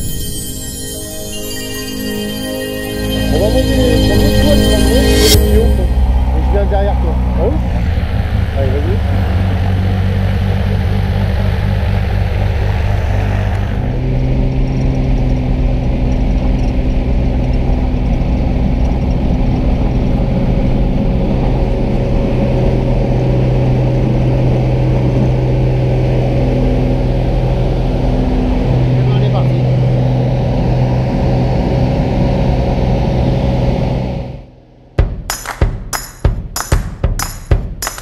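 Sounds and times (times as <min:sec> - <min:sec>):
propeller plane engine running: 0:05.8 - 0:34.3.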